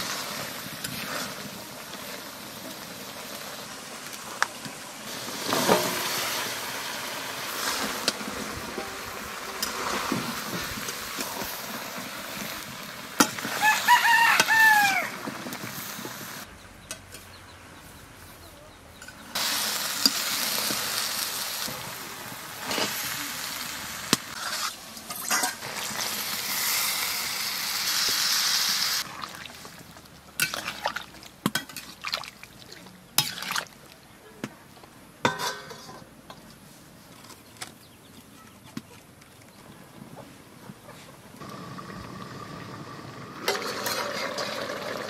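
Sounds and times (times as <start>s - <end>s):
rooster crowing: 13.5s - 15.2s
curry sizzling in a pan: 19.3s - 32.0s
metal spatula scraping pan: 24.3s - 25.7s, 43.4s - 45.0s.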